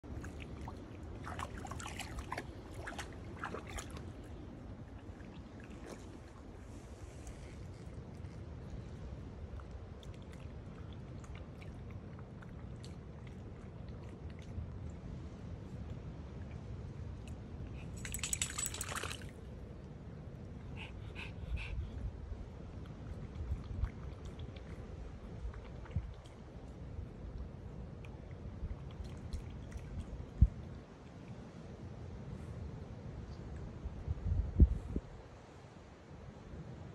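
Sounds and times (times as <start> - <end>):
dog splashing in water: 1.2 - 4.2, 18.0 - 19.3.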